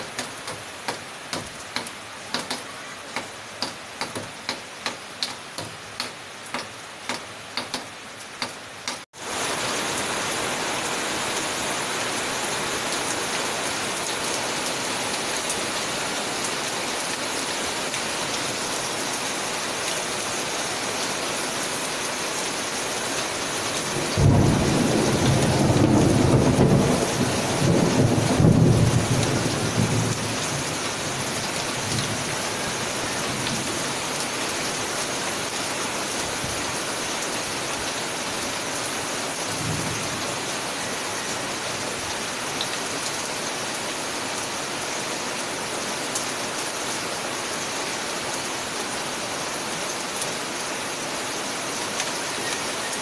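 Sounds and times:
heavy rain: 0.0 - 53.0
thunder rumbling: 23.9 - 30.4.

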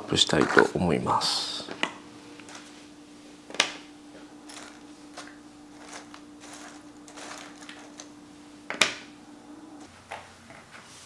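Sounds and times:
puzzle pieces clicking and rustling: 4.4 - 8.1.

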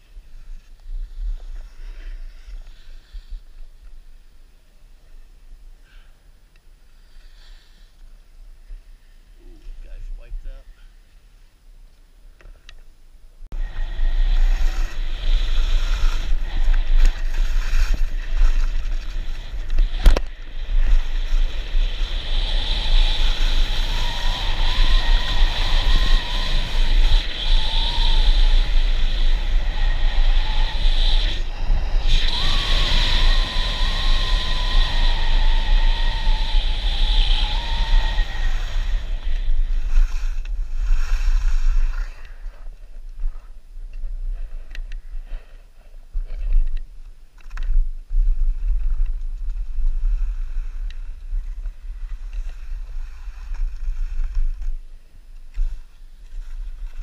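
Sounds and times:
wind rushing over microphone: 13.5 - 57.0
skis scraping on snow: 13.6 - 43.6, 48.1 - 57.0
wavering whistle: 21.7 - 39.9.

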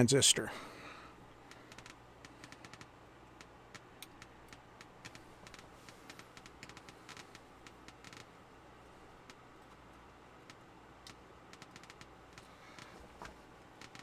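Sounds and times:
faint light clicks and ticks: 1.4 - 14.0.

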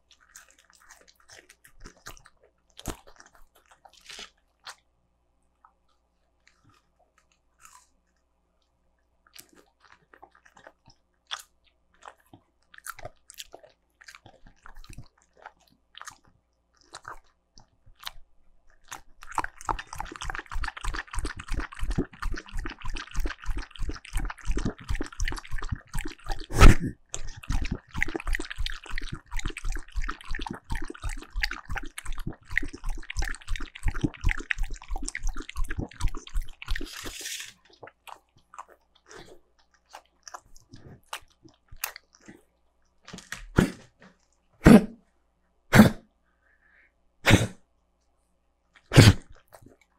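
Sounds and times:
dog chewing with crunches: 0.0 - 4.8, 9.3 - 26.5, 27.1 - 42.4
dog lapping from bowl: 19.2 - 37.1.

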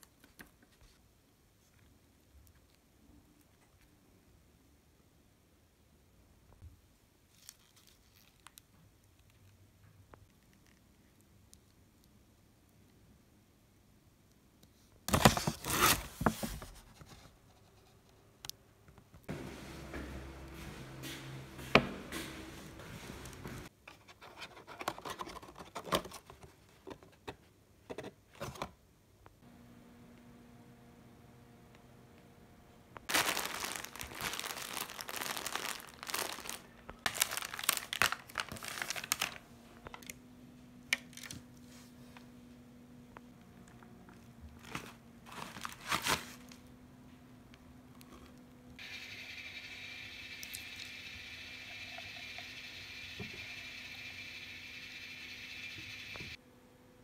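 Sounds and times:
foil packaging crinkling: 33.1 - 39.4, 44.6 - 46.5.

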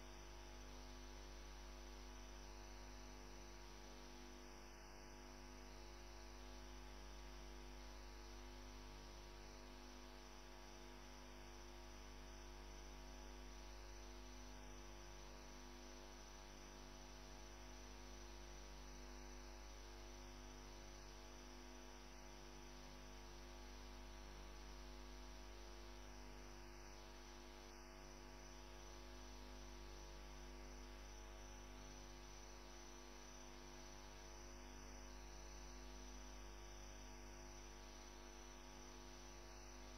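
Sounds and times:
electrical mains hum: 23.4 - 39.9.

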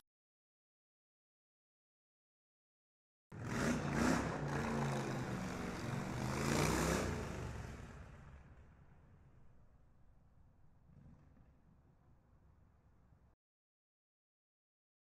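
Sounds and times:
vehicle engine revving: 3.3 - 8.7.

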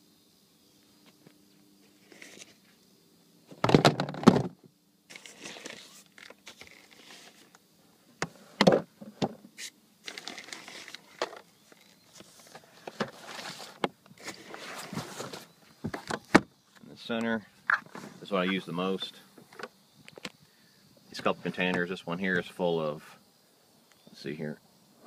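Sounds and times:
plastic box clattering: 3.6 - 5.8
lid and contents scraping: 5.1 - 7.5, 9.6 - 11.4, 12.4 - 15.5.

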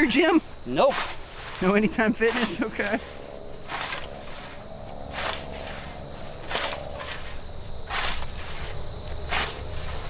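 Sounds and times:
insect chorus: 0.0 - 10.0
scythe swishing through grass: 0.9 - 1.7, 3.7 - 4.5, 5.1 - 10.0.

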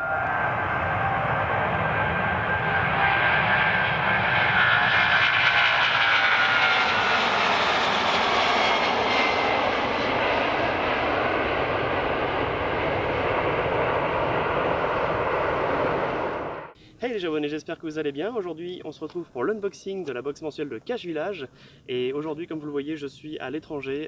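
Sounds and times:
jet engines at takeoff thrust: 0.0 - 17.0.

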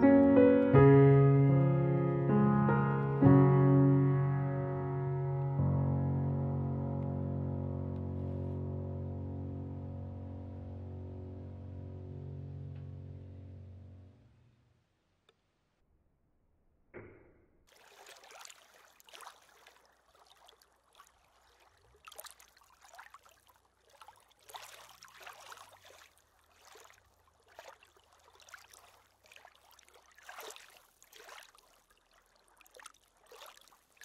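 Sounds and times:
small waves lapping on stones: 17.7 - 34.0.

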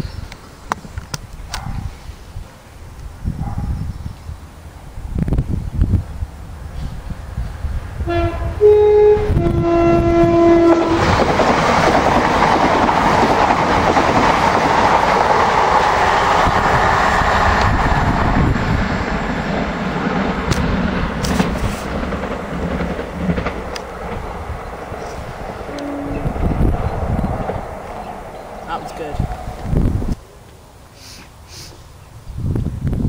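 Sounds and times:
train rushing past: 3.8 - 30.2
two-tone train horn: 8.0 - 11.1, 25.6 - 26.7.

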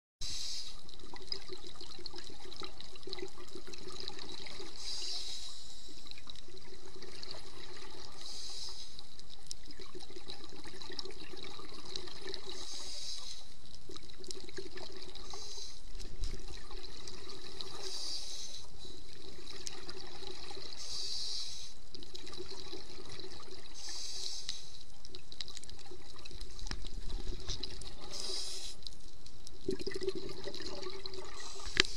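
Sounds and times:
bubbling water: 0.8 - 5.2, 6.0 - 8.5, 9.2 - 20.9, 21.8 - 24.0, 24.8 - 31.9
diver breathing through regulator: 4.7 - 6.0, 8.2 - 9.0, 12.5 - 13.5, 15.2 - 15.9, 17.7 - 19.1, 20.8 - 21.8, 23.7 - 24.8, 28.0 - 28.9, 31.2 - 31.9.

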